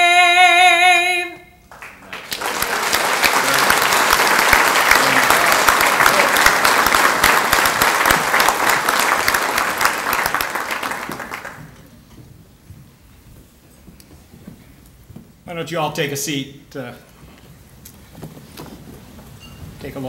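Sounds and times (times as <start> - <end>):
audience applauding: 1.7 - 11.9.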